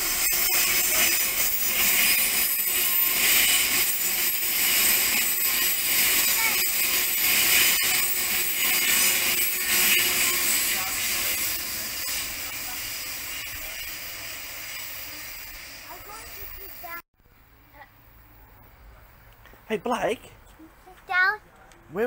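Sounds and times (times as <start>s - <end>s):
train wheels rushing on rail: 0.0s - 17.0s.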